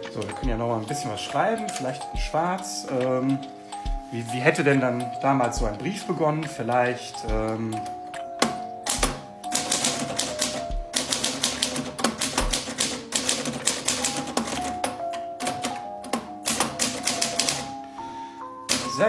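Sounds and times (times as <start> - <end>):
background music: 0.0 - 19.0
typewriter key strikes: 7.3 - 17.7, 18.7 - 19.0.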